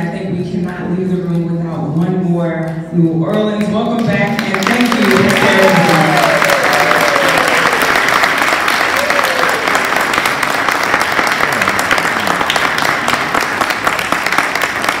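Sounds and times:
audience applauding: 4.0s - 15.0s.

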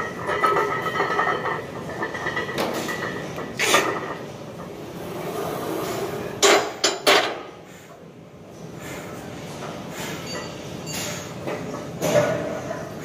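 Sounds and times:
gym weights clanking: 0.0s - 7.5s
gym background noise: 0.0s - 13.0s.

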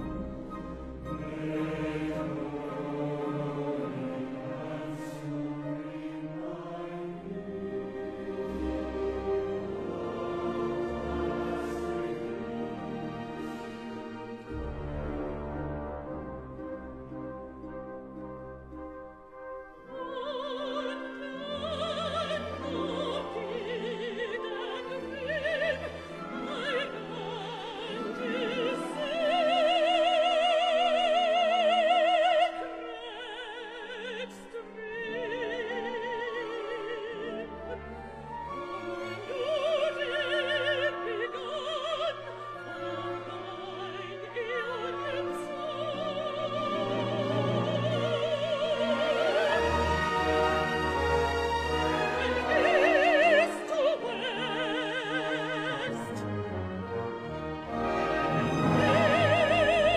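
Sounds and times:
orchestra: 0.0s - 59.9s.

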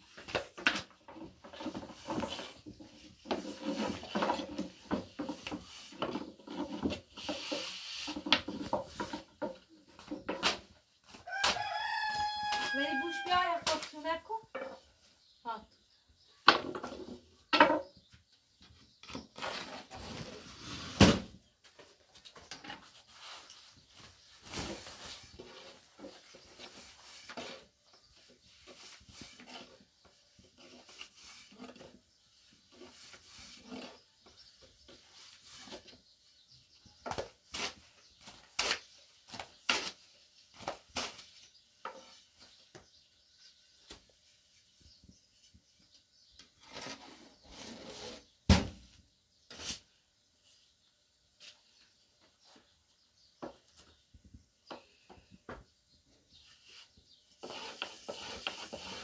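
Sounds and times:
rolling pin rolling and scraping dough: 0.0s - 10.7s, 22.4s - 48.4s, 56.3s - 59.0s.

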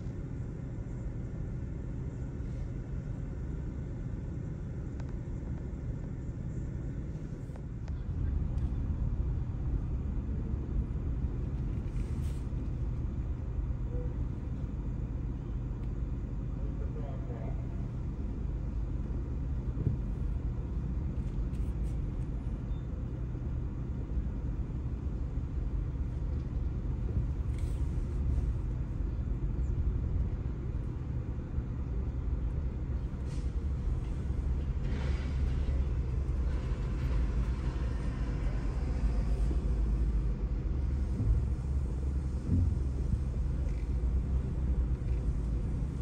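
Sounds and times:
car engine and tyres rumbling: 0.0s - 46.0s.

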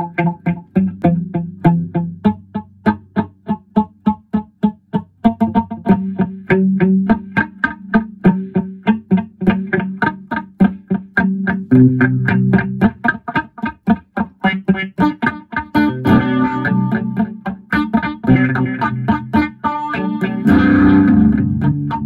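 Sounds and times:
guitar picking notes: 0.0s - 22.0s.

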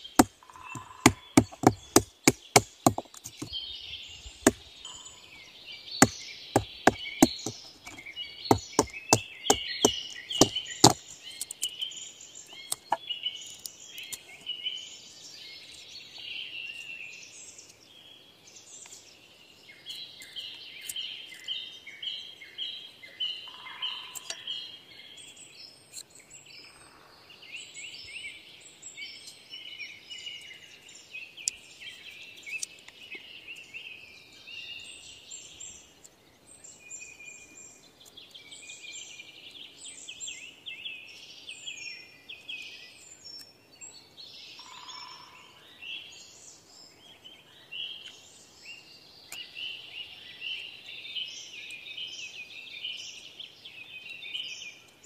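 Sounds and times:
knife clicks whittling wood: 0.0s - 3.5s, 6.0s - 11.8s
songbirds chirping and singing: 0.0s - 55.0s.

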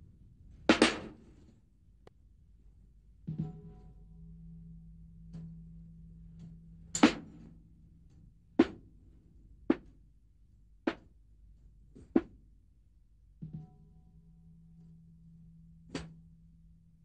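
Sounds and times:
faint low hum: 0.0s - 17.0s
sharp percussive knocks: 3.3s - 4.0s, 8.6s - 8.9s, 13.4s - 13.9s.

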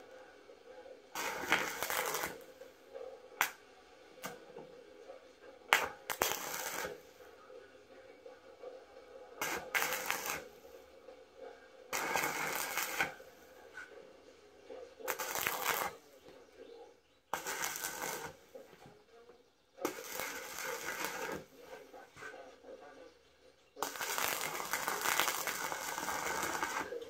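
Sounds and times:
arc welding crackling: 1.1s - 2.6s, 3.4s - 3.6s, 5.7s - 7.1s, 9.4s - 10.8s, 11.9s - 13.4s, 15.0s - 16.1s, 17.3s - 18.6s, 19.8s - 21.6s, 23.8s - 27.0s.

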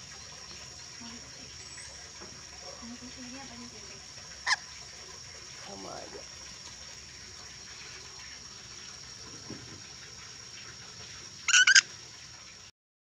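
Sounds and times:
parrot screeching: 4.4s - 4.6s, 11.5s - 11.8s.

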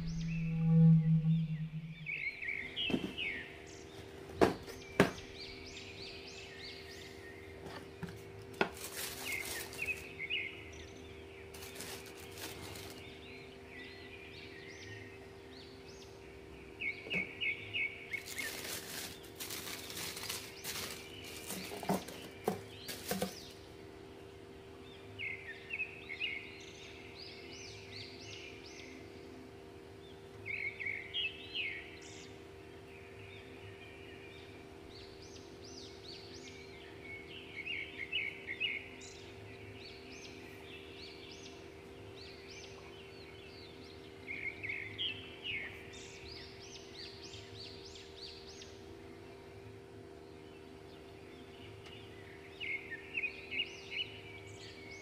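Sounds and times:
birds chirping: 0.0s - 29.4s
steady low hum: 0.0s - 55.0s
plastic wrapping rustling: 8.5s - 10.1s, 11.6s - 13.0s, 18.1s - 23.5s.

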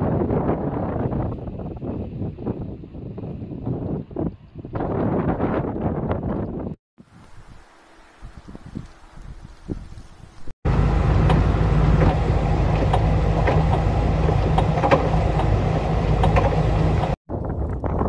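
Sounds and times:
blizzard wind blowing hard: 0.0s - 7.6s, 8.2s - 18.0s
gusting wind: 0.0s - 18.0s.

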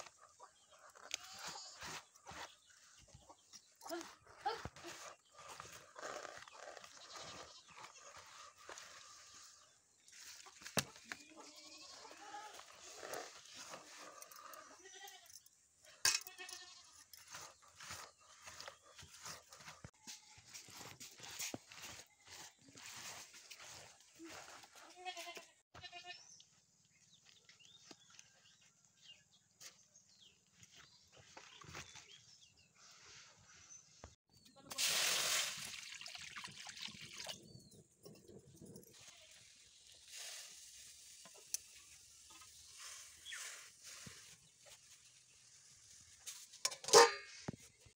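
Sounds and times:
faint goat bleating: 11.1s - 12.6s, 24.2s - 26.2s
water pouring into pot: 34.8s - 37.3s.

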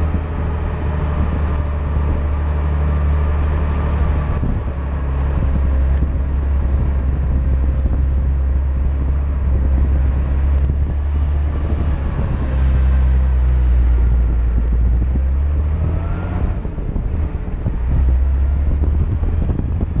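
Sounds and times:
car engine droning: 0.0s - 20.0s
wind noise: 0.0s - 20.0s.

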